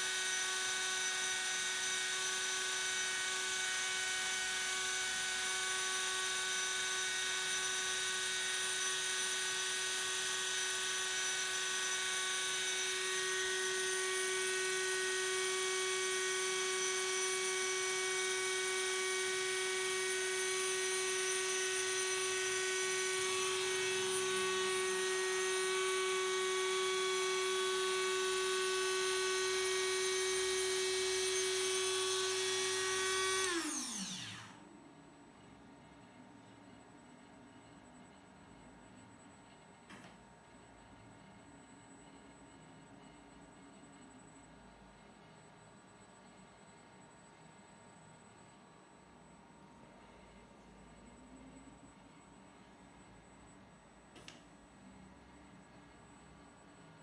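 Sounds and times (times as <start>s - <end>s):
electric milling spindle whining: 0.0s - 34.6s.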